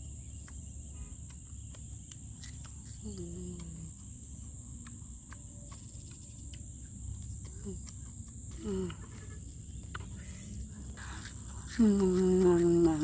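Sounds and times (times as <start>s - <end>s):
crickets chirring: 0.0s - 13.0s
crunchy chewing: 0.0s - 13.0s
person humming: 3.0s - 4.0s, 8.5s - 9.2s, 11.6s - 13.0s.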